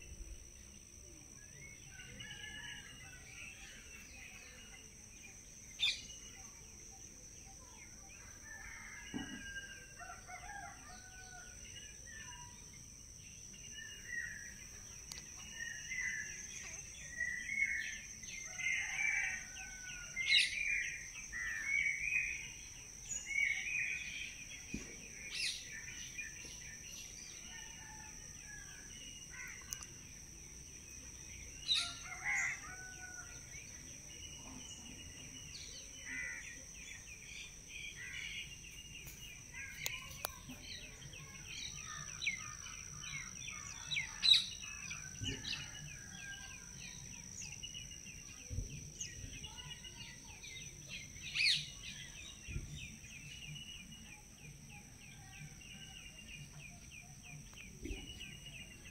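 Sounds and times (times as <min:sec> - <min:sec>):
birds chirping and twittering: 0:00.0 - 0:58.9.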